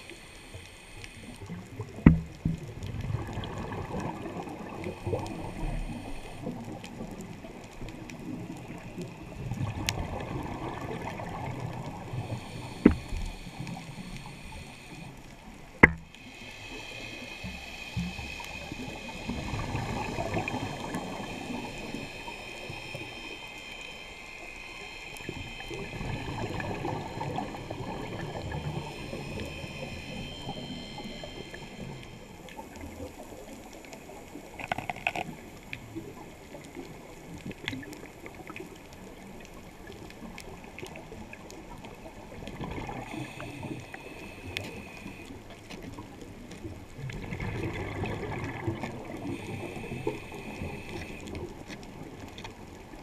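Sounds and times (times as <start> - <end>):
underwater regulator bubbling: 0.0 - 38.8.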